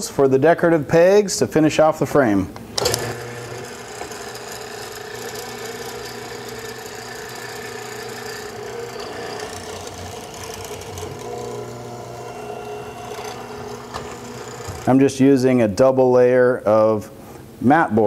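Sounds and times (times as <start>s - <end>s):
mortiser motor humming: 2.8s - 15.0s.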